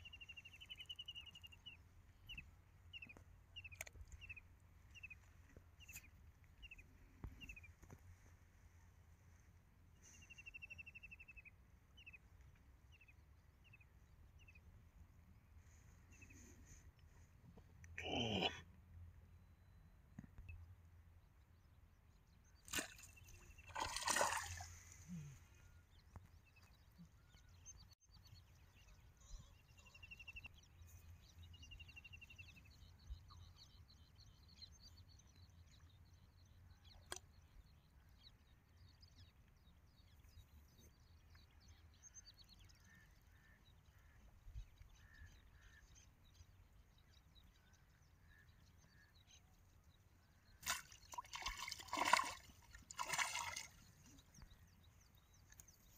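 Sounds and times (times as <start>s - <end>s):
fish splashing at water surface: 23.7s - 24.8s, 50.6s - 53.8s.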